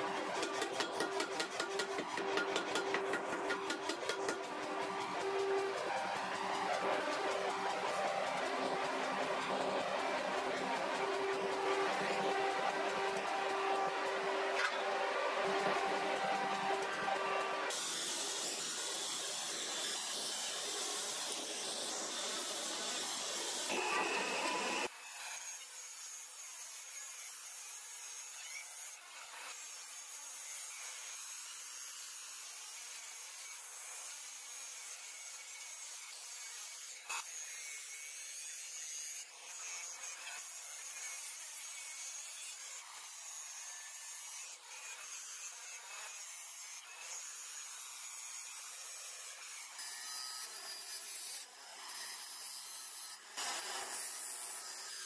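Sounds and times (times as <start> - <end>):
grinding wheel grinding metal: 0.0 - 24.9.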